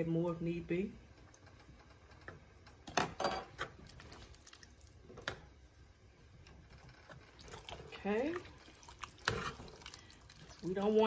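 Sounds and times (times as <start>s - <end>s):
utensils scraping pan: 9.2s - 9.8s.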